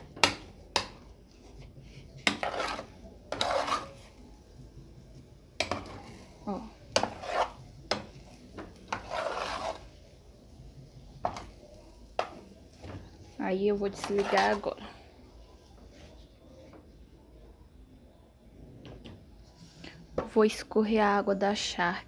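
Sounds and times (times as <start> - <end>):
metal spoon scraping a pot: 0.0 - 4.2, 5.6 - 10.0, 13.8 - 14.9.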